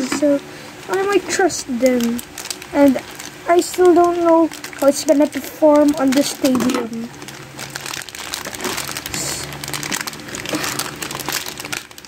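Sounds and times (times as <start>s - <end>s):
plastic bag crinkling: 0.9s - 12.0s.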